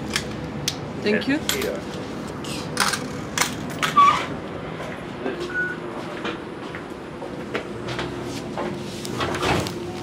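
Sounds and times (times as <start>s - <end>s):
tram hum: 2.3s - 10.0s
short electronic beeps: 5.5s - 5.8s.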